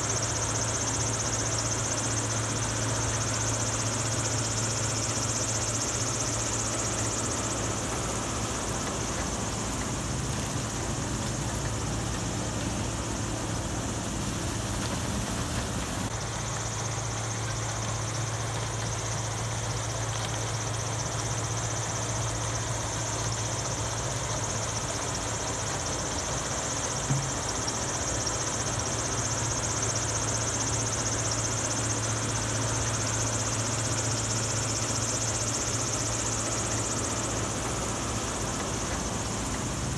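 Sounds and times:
machinery engine hum: 0.0s - 39.9s
brief knock: 27.1s - 27.4s.

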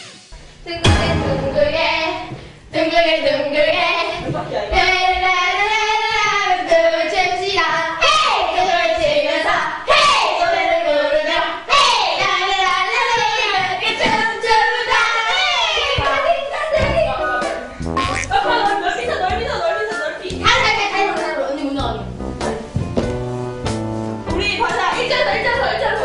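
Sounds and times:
young women singing a chant: 0.7s - 17.7s.

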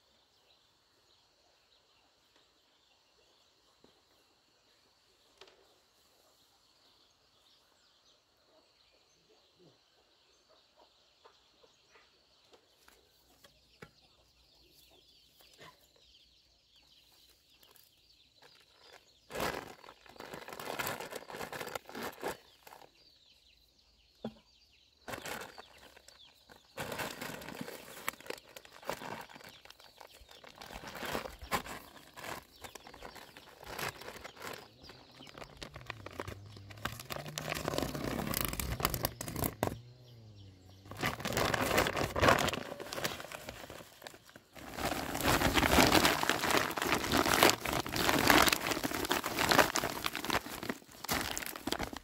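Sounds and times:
loud rustling and scuffling: 40.9s - 52.0s.

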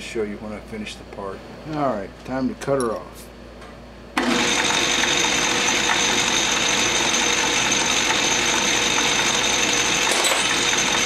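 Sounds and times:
lathe motor whining: 4.2s - 11.0s.

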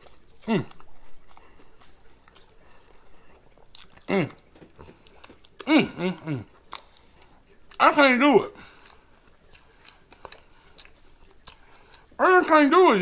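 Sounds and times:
man chewing and lip-smacking: 0.0s - 8.0s, 8.6s - 12.6s.

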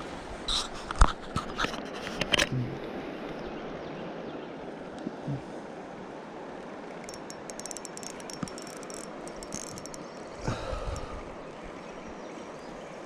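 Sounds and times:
river water rushing: 2.8s - 13.0s
fishing reel clicking: 7.0s - 10.4s.

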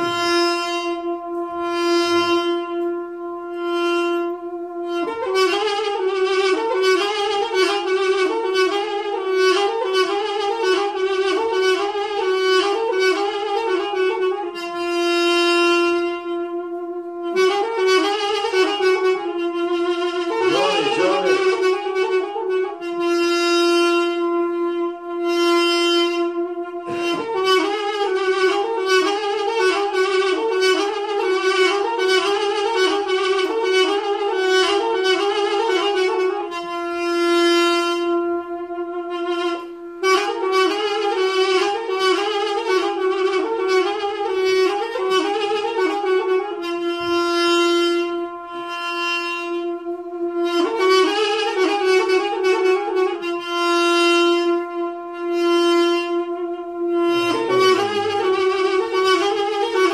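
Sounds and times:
solo wind instrument melody: 0.0s - 59.9s.

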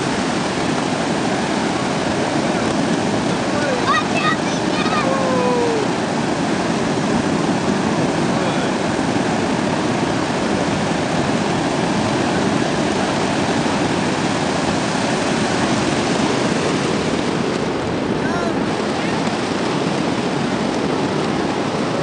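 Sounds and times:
ocean surf breaking: 0.0s - 22.0s.

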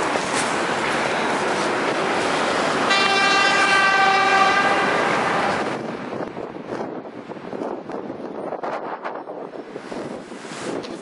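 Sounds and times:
rushing street noise: 0.0s - 11.0s
vehicle horn blast: 2.9s - 5.6s.

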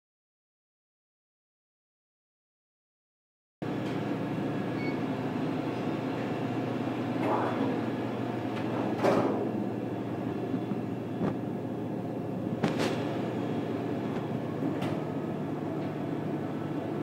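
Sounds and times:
machine hum: 3.6s - 17.0s.

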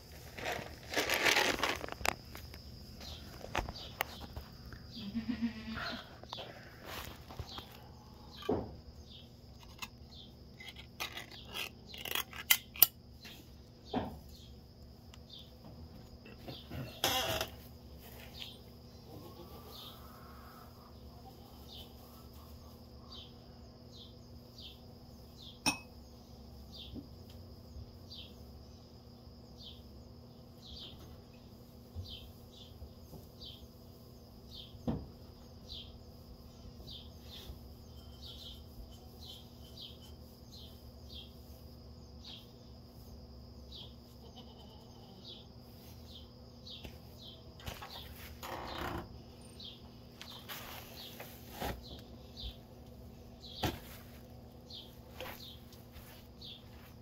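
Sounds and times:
goat bleat: 5.0s - 6.1s, 44.1s - 45.2s.

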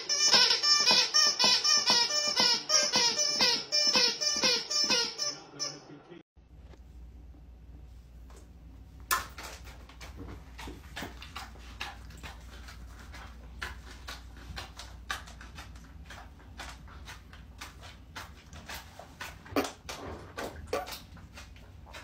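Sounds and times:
low steady hum: 5.5s - 22.0s.

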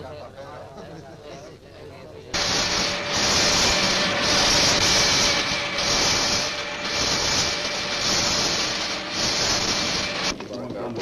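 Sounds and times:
rhythmic hiss: 2.4s - 10.4s.

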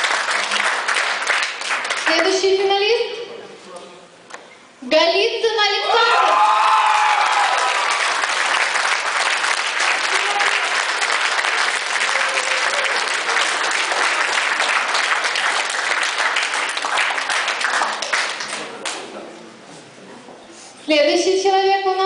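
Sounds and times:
crowd applauding: 0.0s - 2.3s, 6.2s - 19.1s.

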